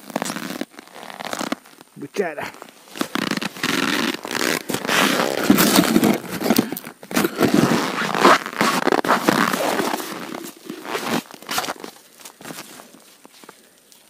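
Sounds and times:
boots crunching on frozen snow: 0.0 - 13.8
winter clothing rustling: 0.0 - 14.0.

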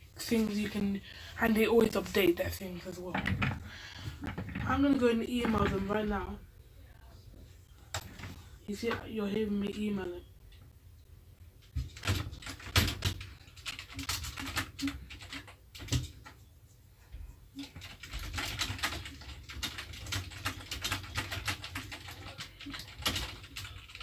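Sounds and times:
computer keyboard typing: 11.8 - 16.4, 17.6 - 24.0.

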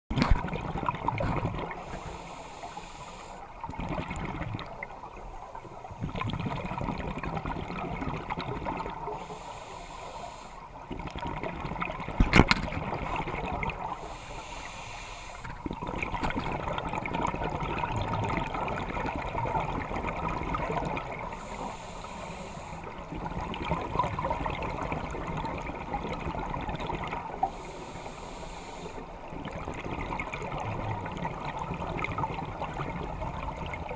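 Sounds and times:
gurgling exhaled bubbles: 0.1 - 2.2, 3.6 - 9.4, 10.8 - 14.2, 15.4 - 21.8, 22.8 - 27.8, 29.1 - 33.9
regulator breath hissing: 1.8 - 3.5, 9.2 - 10.7, 13.9 - 15.5, 21.3 - 22.9, 27.4 - 29.1.

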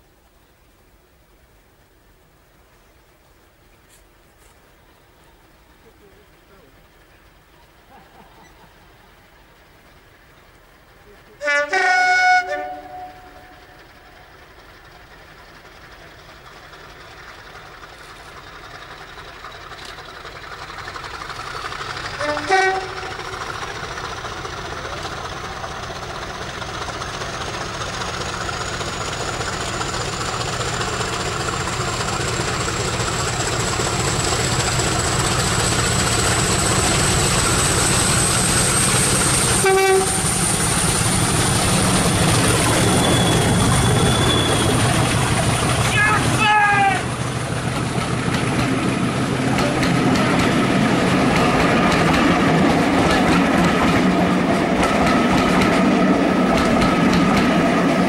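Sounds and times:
diesel locomotive approaching: 0.0 - 58.0
train horn blast: 11.4 - 13.8, 22.2 - 23.2, 39.6 - 40.3
high whine climbing in pitch: 31.2 - 58.0.

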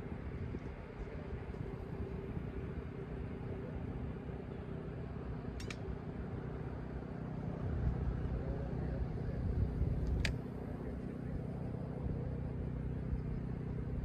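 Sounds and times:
wind buffeting microphone: 7.6 - 10.3.

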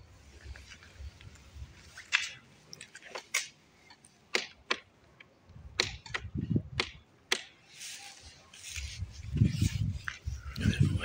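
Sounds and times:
footsteps on hard path: 7.6 - 11.0.

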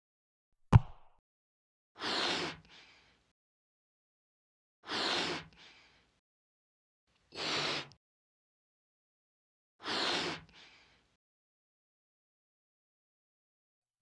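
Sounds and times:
breathy puffs into balloon: 4.9 - 6.1, 9.8 - 11.1.

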